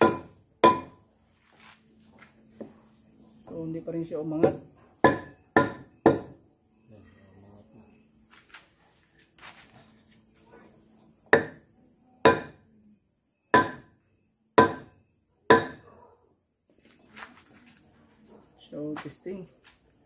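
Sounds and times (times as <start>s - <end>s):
wooden club striking metal: 0.0s - 1.0s
crickets chirring: 0.0s - 20.0s.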